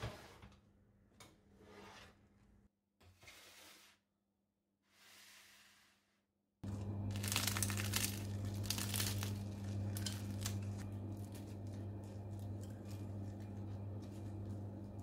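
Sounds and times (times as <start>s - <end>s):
bread crust crackling: 6.6s - 15.0s
low hum: 6.6s - 15.0s.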